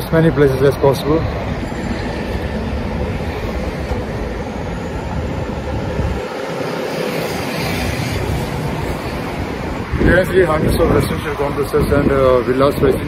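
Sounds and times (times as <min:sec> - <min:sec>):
road traffic passing: 0:00.0 - 0:13.0
wind buffeting microphone: 0:00.0 - 0:13.0.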